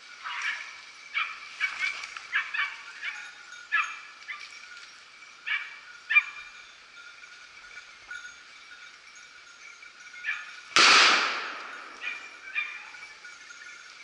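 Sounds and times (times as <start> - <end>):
dogs barking and yelping: 0.1 - 6.7, 10.0 - 10.7, 11.7 - 14.0.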